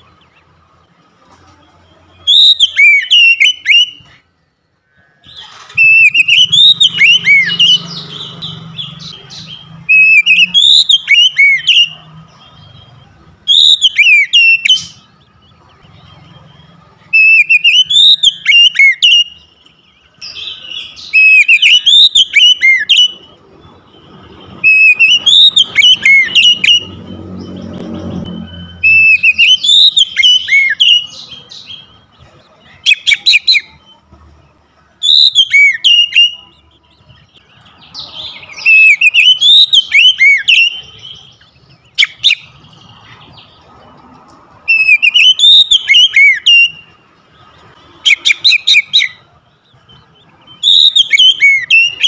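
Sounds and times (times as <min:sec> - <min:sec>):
bird singing whistled phrases: 0:02.1 - 0:04.2, 0:05.3 - 0:15.2, 0:17.1 - 0:23.3, 0:24.6 - 0:27.0, 0:28.4 - 0:32.1, 0:32.8 - 0:33.9, 0:35.0 - 0:37.2, 0:37.9 - 0:42.6, 0:44.7 - 0:47.0, 0:48.0 - 0:49.2, 0:50.4 - 0:52.0.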